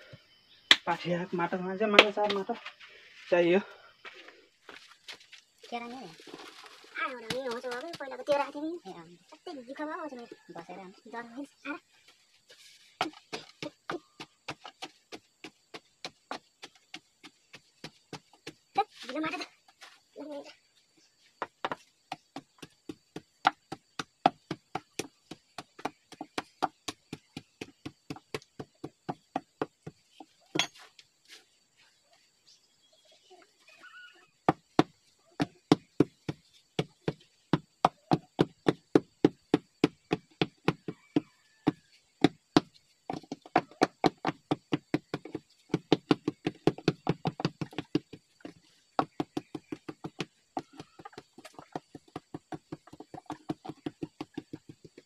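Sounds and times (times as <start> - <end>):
dull thuds of soil tamping: 12.8 - 20.0, 21.4 - 31.6, 34.4 - 55.0.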